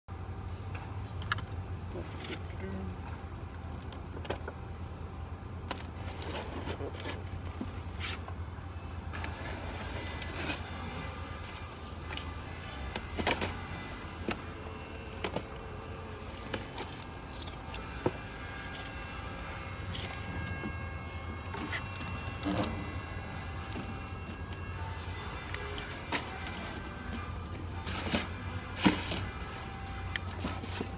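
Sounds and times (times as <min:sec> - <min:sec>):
steady low hum: 0:00.1 - 0:30.9
cardboard scraping and tearing: 0:05.8 - 0:08.3, 0:09.2 - 0:19.0, 0:25.6 - 0:30.9.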